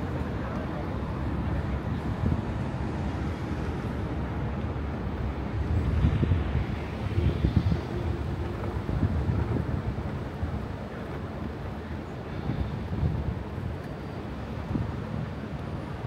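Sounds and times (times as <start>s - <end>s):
street traffic rumbling: 0.0s - 16.0s
wind buffeting the microphone: 0.0s - 16.0s.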